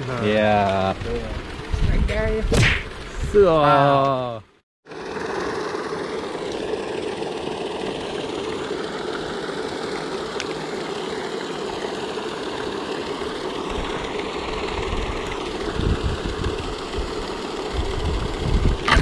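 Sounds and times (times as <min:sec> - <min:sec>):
pond aerators droning: 0:00.0 - 0:19.0
water churning: 0:04.9 - 0:19.0.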